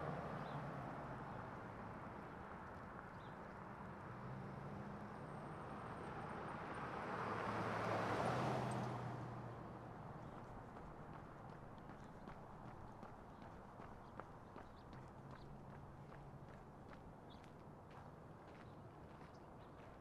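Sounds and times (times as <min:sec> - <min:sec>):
car passing by: 0:04.0 - 0:11.4.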